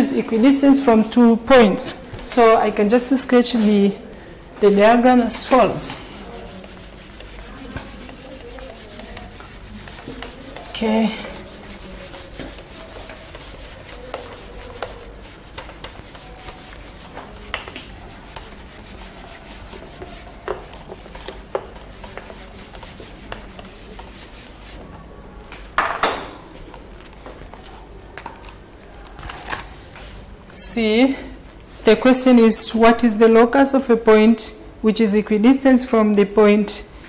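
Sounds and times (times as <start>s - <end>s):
eraser rubbing on whiteboard: 4.7s - 24.8s.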